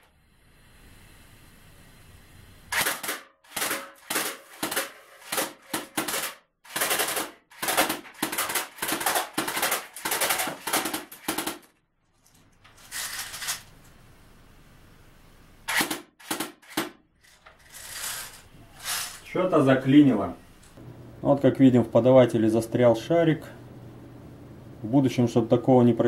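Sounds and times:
air gun firing gas bursts: 2.7 - 11.7, 15.6 - 17.0.

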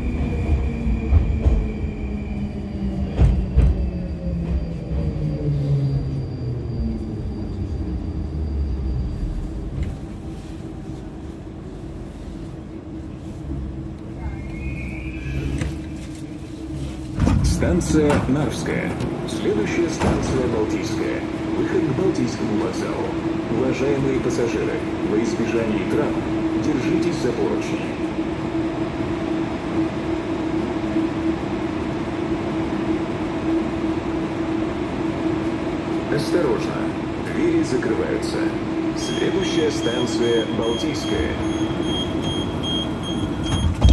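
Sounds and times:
metro train rumbling: 0.0 - 43.9.

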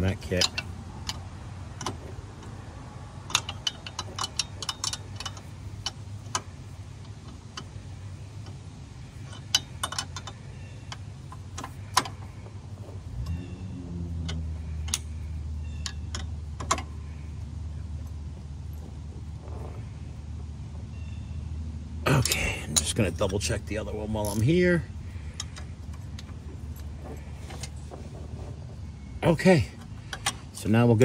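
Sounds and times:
metal tapping: 0.0 - 2.6, 3.2 - 7.8, 8.4 - 13.4, 24.2 - 28.6
low steady hum: 0.0 - 31.0
ratchet wrench clicking: 3.2 - 7.7, 9.2 - 12.3.

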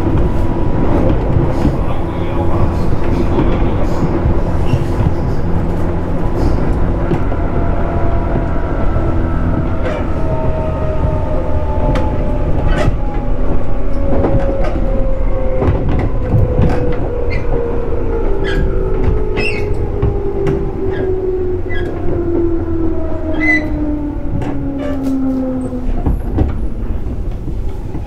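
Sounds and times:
wheels clicking on track: 0.0 - 21.0
train running rumble: 0.0 - 28.0.

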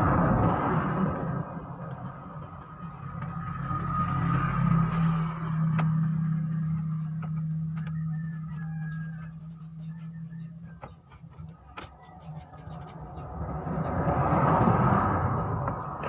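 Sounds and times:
rushing noise: 0.0 - 6.9
toothbrush scrubbing circuit board: 0.0 - 14.9.

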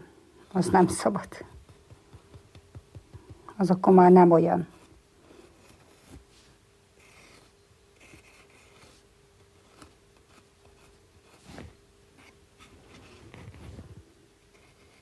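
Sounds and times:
faint steady hum: 0.0 - 15.0
tool scratching clay: 14.5 - 15.0.

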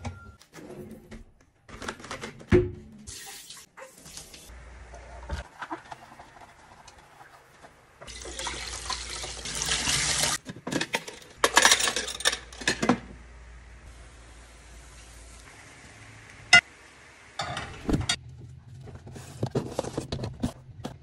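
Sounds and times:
tap water running into sink: 8.1 - 10.4
dishes clattering: 10.4 - 13.1, 17.4 - 18.2.

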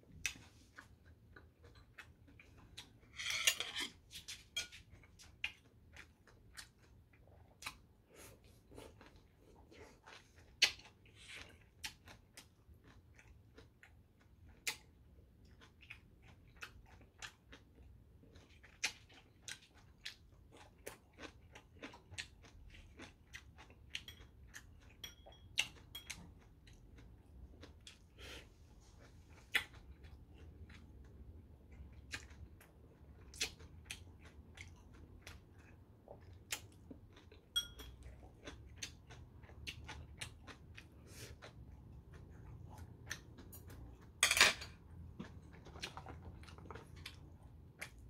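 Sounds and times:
chewing: 0.0 - 48.0.

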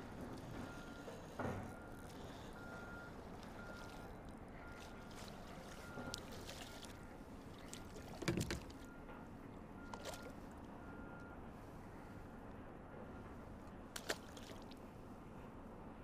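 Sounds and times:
fish splashing at water surface: 14.0 - 14.8.

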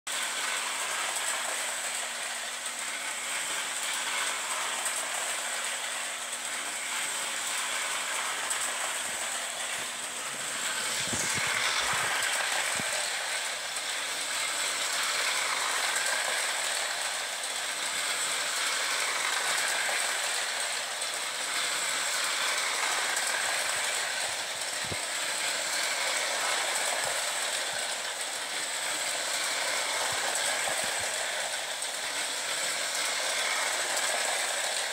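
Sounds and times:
steady high whine: 0.1 - 34.9
toy train motor whir and rattle: 0.1 - 34.9.

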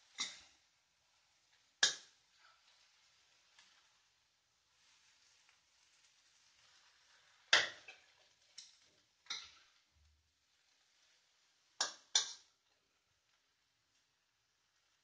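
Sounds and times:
spatula scraping a wok: 2.4 - 4.1, 4.7 - 9.8
spatula striking a wok: 7.5 - 8.0.

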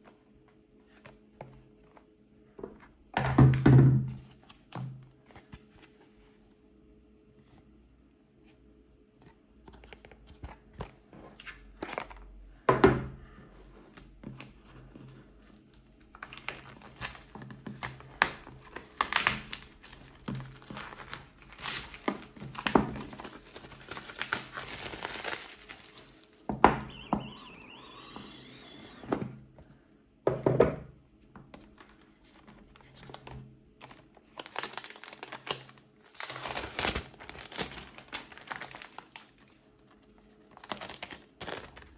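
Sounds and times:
packaging crinkling and rustling: 13.9 - 28.8, 31.6 - 41.9.

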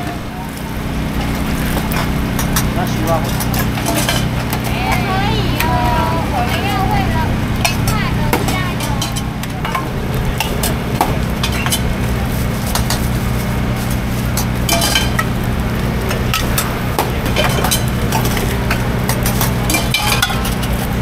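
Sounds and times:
low hum: 0.0 - 21.0
metal utensils clinking on a cup: 1.2 - 7.0, 7.6 - 10.8, 11.4 - 12.0, 14.4 - 15.4, 16.1 - 21.0.

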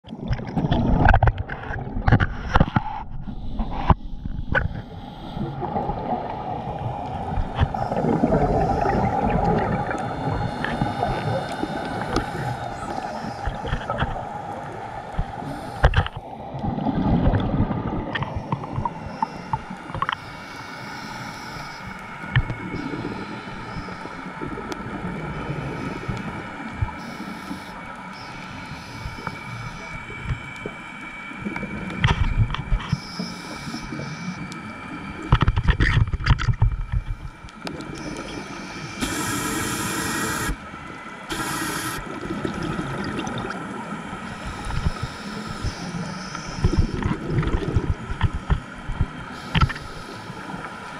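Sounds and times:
exhaled bubbles rumbling underwater: 0.0 - 20.2, 21.9 - 50.9
regulator inhalation hiss: 10.0 - 13.7, 15.3 - 16.1, 19.0 - 24.4, 25.4 - 30.8, 32.9 - 34.5, 38.0 - 40.6, 41.3 - 42.1, 44.2 - 47.0, 49.3 - 50.9.

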